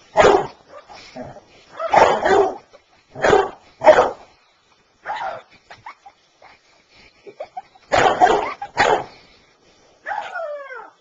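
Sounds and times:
dog barking: 0:00.2 - 0:00.6, 0:01.8 - 0:02.6, 0:03.2 - 0:04.2, 0:07.9 - 0:09.1.

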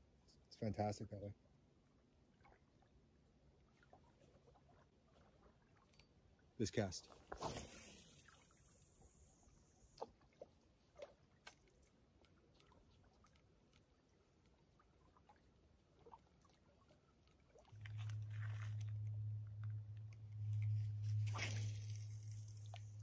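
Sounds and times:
steady low hum: 0:17.7 - 0:23.0.

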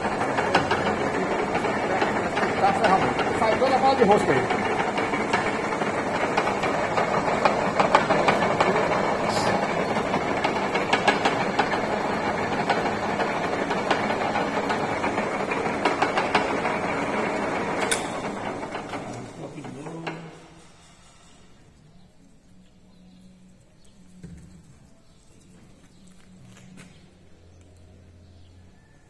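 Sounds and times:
lathe chuck whirring: 0:00.0 - 0:21.8.

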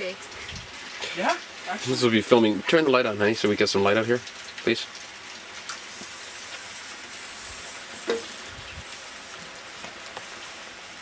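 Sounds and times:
firework fuse sizzling: 0:04.6 - 0:11.0.

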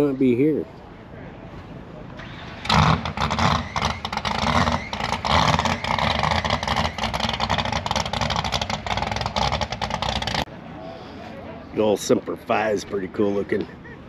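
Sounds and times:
vehicle engine running hard: 0:02.2 - 0:10.6.

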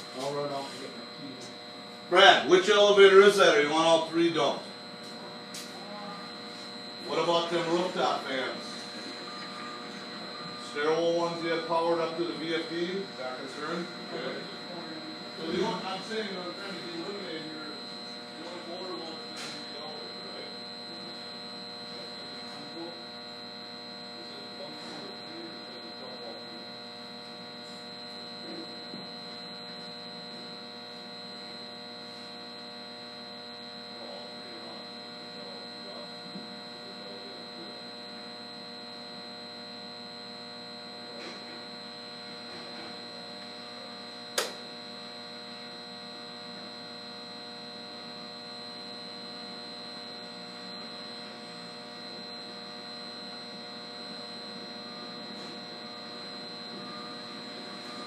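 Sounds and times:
electrical hum: 0:00.0 - 0:58.0
steady high tones: 0:05.5 - 0:21.2
sharp click: 0:44.4 - 0:44.6.

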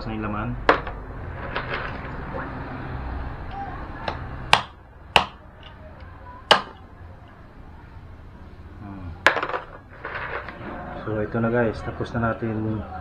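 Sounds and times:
knife chopping on wooden block: 0:04.5 - 0:05.4, 0:06.5 - 0:06.8.

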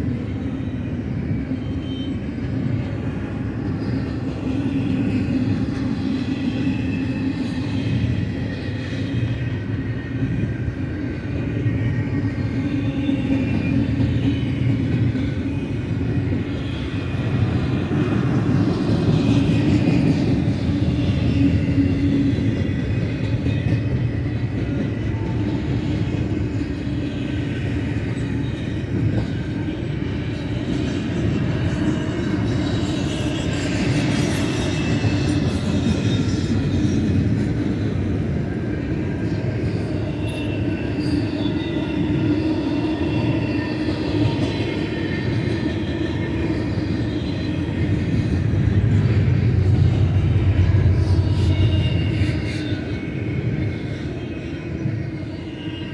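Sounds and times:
train wheels rumbling on rail: 0:00.0 - 0:55.9.

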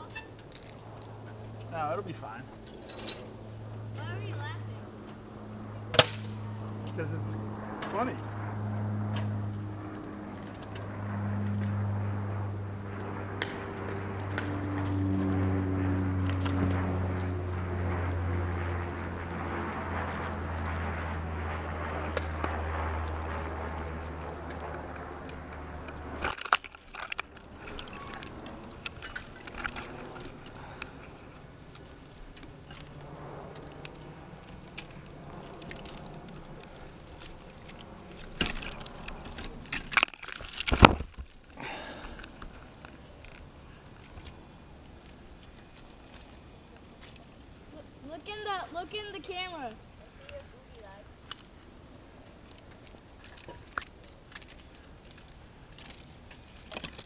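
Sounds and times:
drone motors humming: 0:00.0 - 0:50.0
twigs snapping and scraping: 0:00.4 - 0:01.8, 0:05.9 - 0:08.0, 0:09.0 - 0:48.3, 0:49.9 - 0:57.0
drone crashing into branches: 0:05.8 - 0:30.6.

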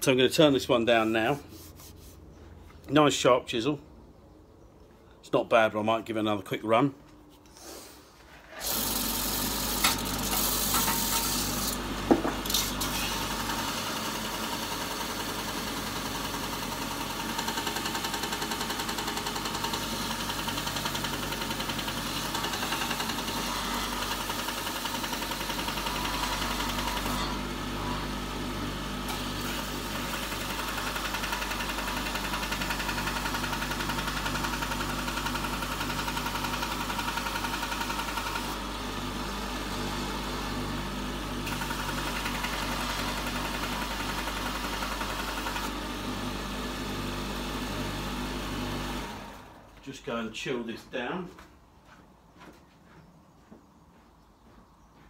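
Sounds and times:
electric grinder motor hum: 0:08.5 - 0:49.6.

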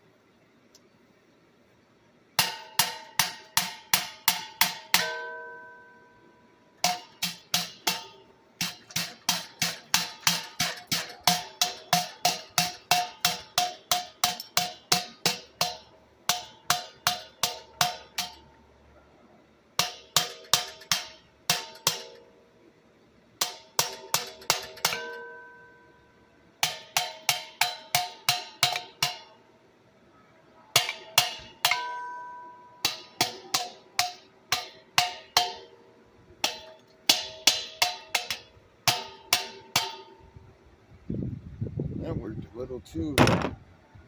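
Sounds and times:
hammer striking metal: 0:02.4 - 0:06.2, 0:06.8 - 0:18.6, 0:19.8 - 0:22.3, 0:23.4 - 0:29.4, 0:30.6 - 0:35.8, 0:36.4 - 0:40.3.

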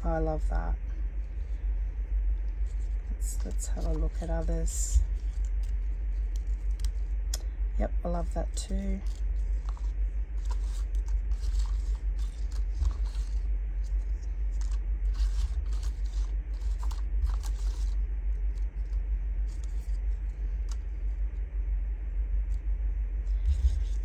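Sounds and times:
steady low hum: 0:00.0 - 0:24.0
paper rustling and scraping: 0:02.4 - 0:07.2, 0:08.6 - 0:21.2, 0:23.2 - 0:24.0.

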